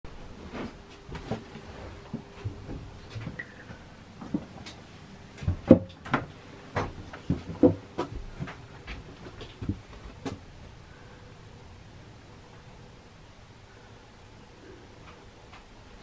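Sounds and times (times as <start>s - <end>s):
knocks and thumps of handling: 5.4s - 10.4s.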